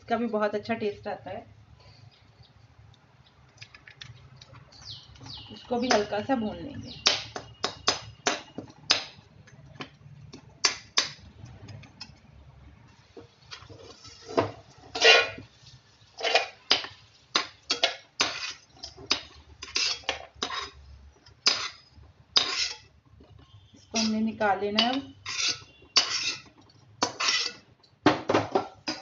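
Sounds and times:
spatula scraping metal pan: 13.5 - 15.5, 16.2 - 16.8, 17.7 - 20.8, 21.4 - 27.7.

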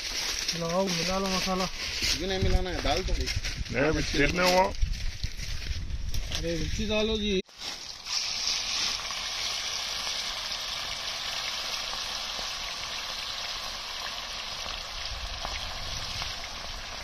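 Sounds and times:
fish frying in oil: 7.8 - 17.0.

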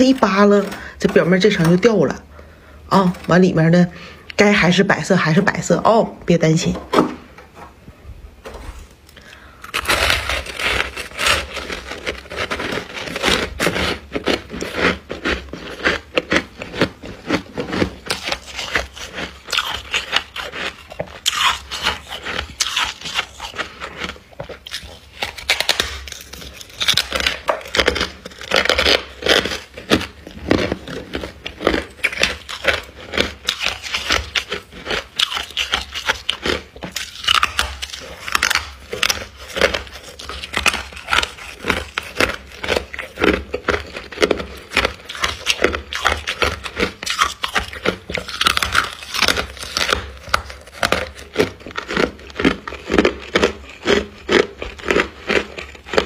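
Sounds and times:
freezer frost crunching: 0.0 - 6.8, 8.6 - 56.0.

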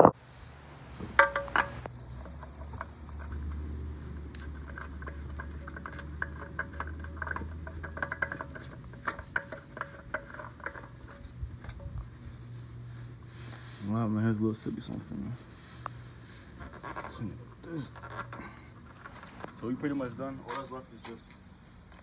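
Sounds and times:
oil filter being screwed on: 1.0 - 12.4, 15.8 - 19.6.

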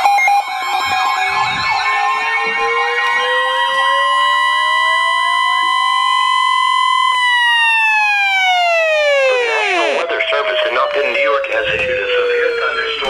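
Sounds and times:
steady warning alarm tone: 0.0 - 13.0
wailing electronic siren: 0.0 - 13.0.

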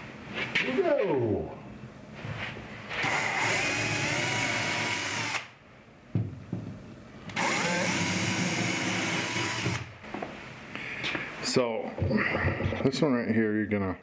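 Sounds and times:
power drill boring through drywall: 3.0 - 5.5, 7.4 - 9.9.

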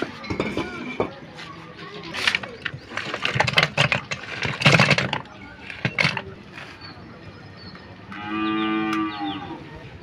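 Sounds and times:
wood chips clattering: 2.0 - 6.7
cow mooing: 8.1 - 9.6.

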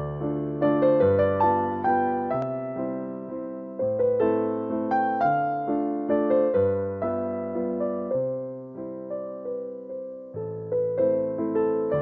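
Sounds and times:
calm piano melody: 0.0 - 12.0.

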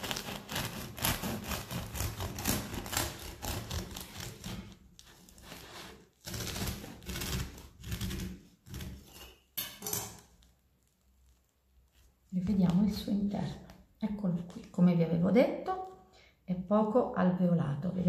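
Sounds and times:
bread knife sawing crisp crust: 0.0 - 9.4.

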